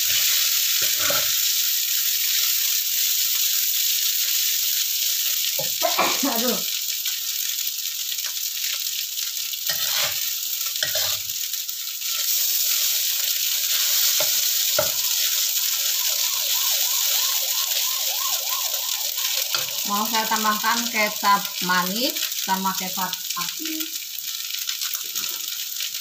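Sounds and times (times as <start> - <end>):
noodles sizzling in a wok: 0.0 - 26.0
spatula scraping metal pan: 0.8 - 1.3, 9.7 - 11.2.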